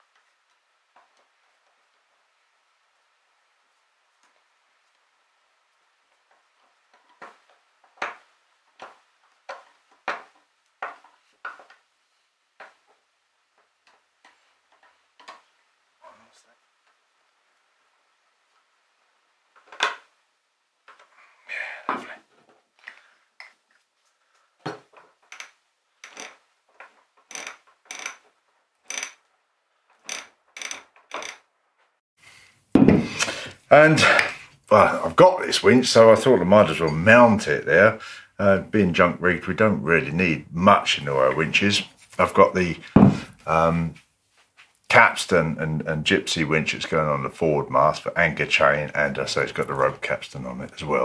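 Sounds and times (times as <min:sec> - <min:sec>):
winch ratchet clicking: 0:27.3 - 0:28.2, 0:28.9 - 0:29.2.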